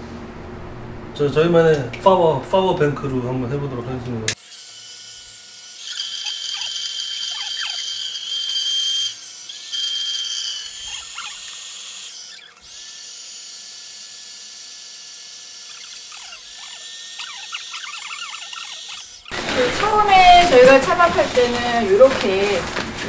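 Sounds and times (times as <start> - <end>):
electric air pump whining: 4.4 - 23.0
faint short squeaks: 15.7 - 19.4.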